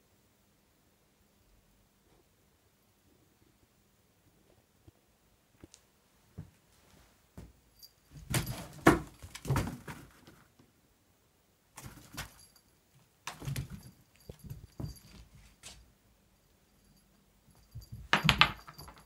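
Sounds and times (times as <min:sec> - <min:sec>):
light metallic jingle: 0:07.7 - 0:09.4, 0:11.8 - 0:19.0.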